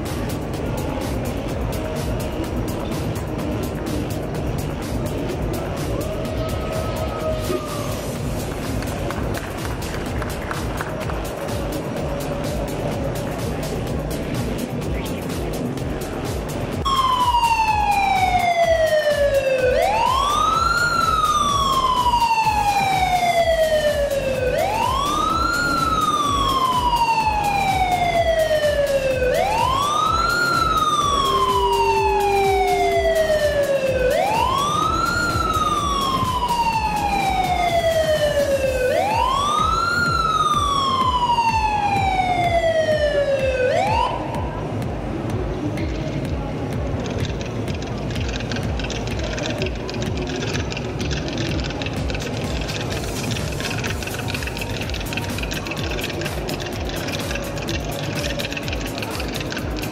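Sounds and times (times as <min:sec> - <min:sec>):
siren-like wail: 0:03.8 - 0:08.8, 0:16.8 - 0:44.8, 0:49.5 - 0:59.9
steady low tone: 0:08.0 - 0:59.9.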